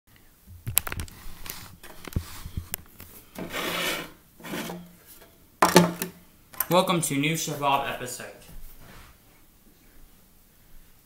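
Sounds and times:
rubbing scrape: 0:01.1 - 0:02.7, 0:03.3 - 0:05.2
handling clicks and knocks: 0:05.6 - 0:06.8.

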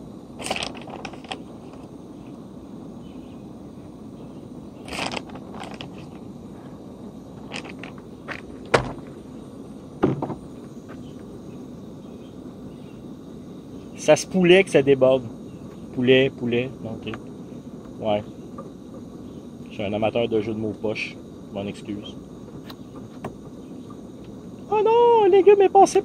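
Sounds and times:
camping stove burning: 0:00.0 - 0:25.8.

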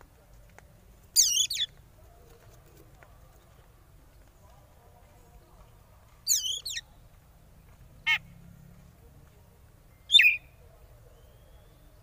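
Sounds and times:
bird whistled calls: 0:06.3 - 0:06.8, 0:10.1 - 0:12.0.

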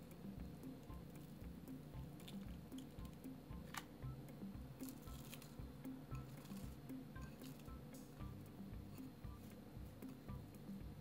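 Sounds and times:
soft background music: 0:00.0 - 0:11.0.

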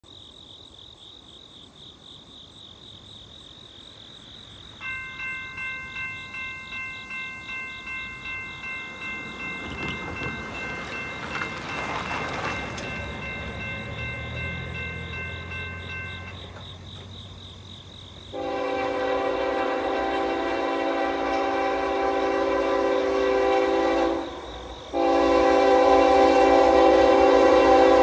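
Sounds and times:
railroad crossing bell ringing: 0:04.7 - 0:28.0
train horn drone: 0:18.3 - 0:28.0.

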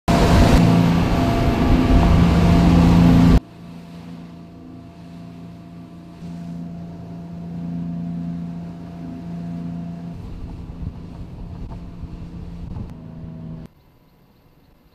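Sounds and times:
boat engine: 0:00.0 - 0:14.9
rushing wake water: 0:00.1 - 0:14.9
wind: 0:00.1 - 0:14.9.

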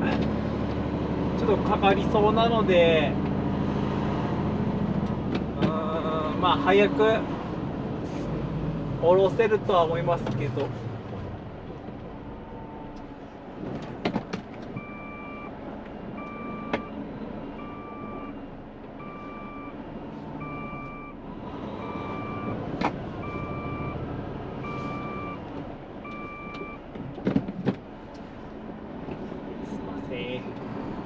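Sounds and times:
diesel engine running: 0:00.0 - 0:31.0
sharp clicks in truck cab: 0:12.9 - 0:14.9, 0:22.8 - 0:23.0, 0:25.6 - 0:28.3
truck reversing alarm beeping: 0:14.8 - 0:21.2, 0:21.8 - 0:22.6, 0:23.2 - 0:25.4, 0:26.0 - 0:26.8.

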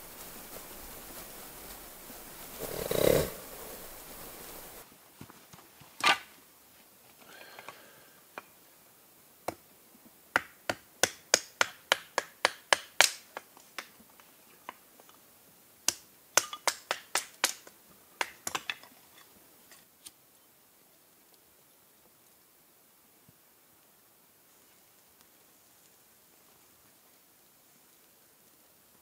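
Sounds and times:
hatchet chopping wood: 0:10.4 - 0:13.9, 0:15.9 - 0:18.8.

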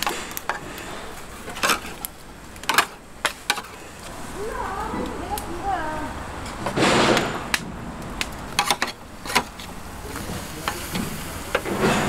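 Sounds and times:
utensils knocking and clacking: 0:08.2 - 0:12.0.

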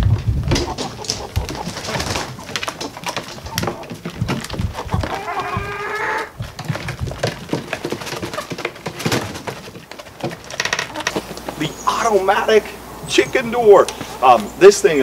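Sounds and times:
hens pecking at a feeder: 0:00.0 - 0:12.6
hen calling: 0:04.7 - 0:06.4, 0:10.8 - 0:15.0.

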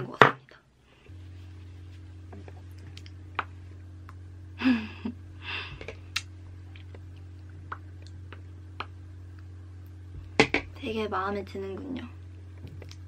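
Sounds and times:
low electrical hum: 0:00.0 - 0:13.0
person sighing: 0:04.6 - 0:06.0.

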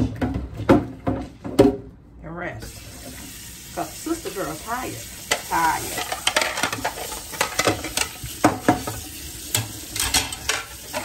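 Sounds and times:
tap water running: 0:02.6 - 0:11.0
dishes clinking against sink: 0:05.3 - 0:11.0.

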